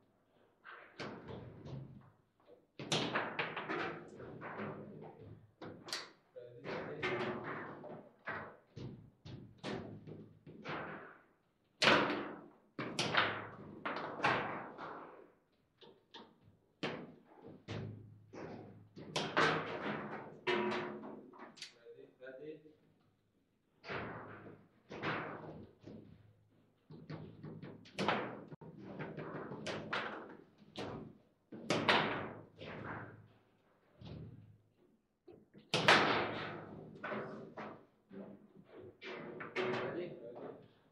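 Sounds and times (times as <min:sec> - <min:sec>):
foosball ball knocks and clacks: 0:02.8 - 0:21.6, 0:23.8 - 0:26.2, 0:26.9 - 0:33.2, 0:35.3 - 0:37.8, 0:38.6 - 0:40.6
foosball rods banging: 0:17.8 - 0:21.1.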